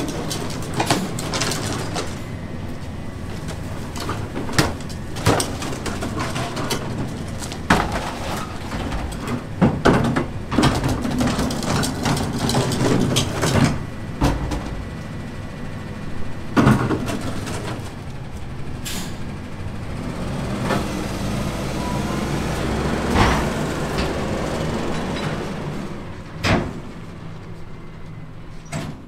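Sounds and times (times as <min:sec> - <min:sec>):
garbage truck engine running: 0:00.0 - 0:29.0
metallic clanks and bangs: 0:23.0 - 0:25.6.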